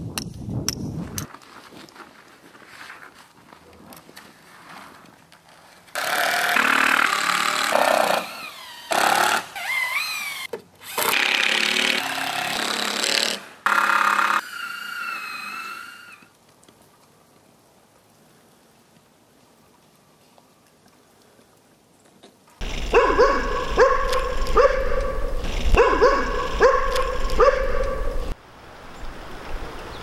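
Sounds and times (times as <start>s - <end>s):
power tool whining: 22.6s - 28.4s.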